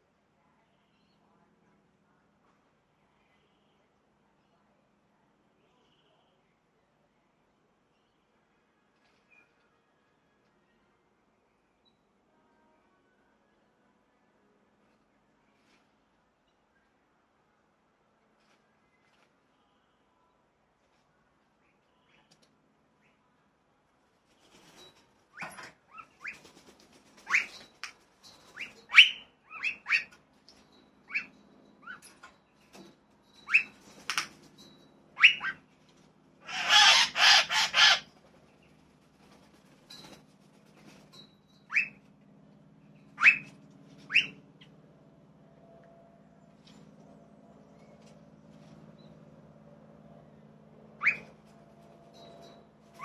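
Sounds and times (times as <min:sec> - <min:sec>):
birds chirping and whistling: 0:27.2 - 0:32.2, 0:33.3 - 0:34.0, 0:35.2 - 0:35.6, 0:41.4 - 0:42.0, 0:42.9 - 0:44.4, 0:51.0 - 0:51.3
harsh bird squawks: 0:28.6 - 0:30.2, 0:35.2 - 0:35.6, 0:36.4 - 0:38.1, 0:43.2 - 0:43.5, 0:44.1 - 0:44.4, 0:51.0 - 0:51.3.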